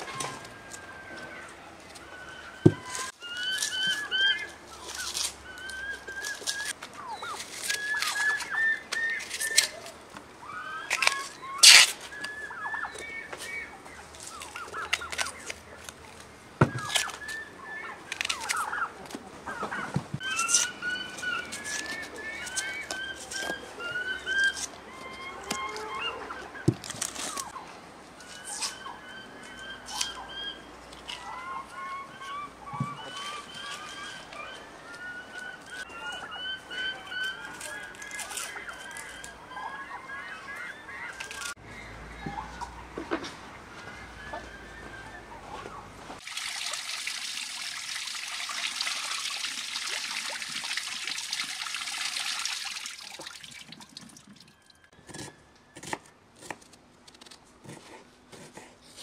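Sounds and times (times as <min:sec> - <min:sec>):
birds chirping: 0:00.0 - 0:16.0, 0:16.6 - 0:46.2.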